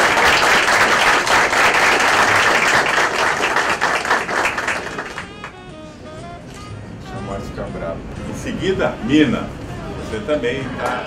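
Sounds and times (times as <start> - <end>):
people applauding: 0.0 - 5.7.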